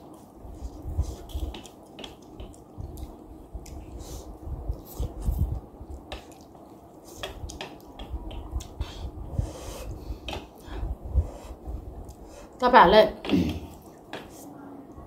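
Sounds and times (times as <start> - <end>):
wet chewing and lip smacks: 1.1 - 4.1, 4.7 - 8.8.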